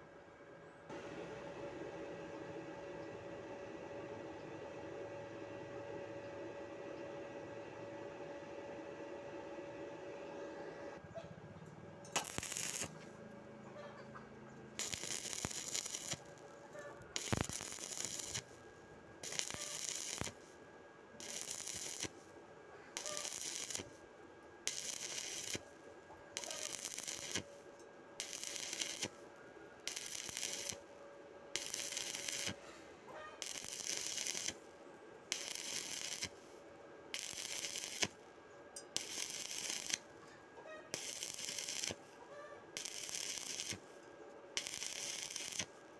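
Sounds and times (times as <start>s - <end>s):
welding arc crackling: 12.0s - 13.1s, 14.8s - 18.6s, 19.2s - 20.5s, 21.2s - 22.3s, 23.0s - 24.0s, 24.6s - 25.8s, 26.4s - 27.6s, 28.2s - 29.2s, 29.8s - 30.8s, 31.6s - 32.6s, 33.4s - 34.7s, 35.3s - 36.5s, 37.1s - 38.2s, 38.9s - 40.1s, 40.9s - 44.0s, 44.6s - 45.9s.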